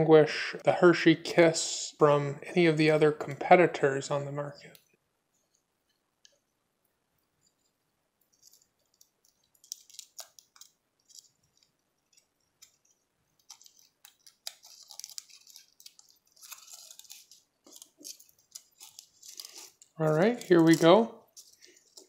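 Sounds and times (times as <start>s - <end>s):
foil wrapper crinkling: 8.3s - 22.0s.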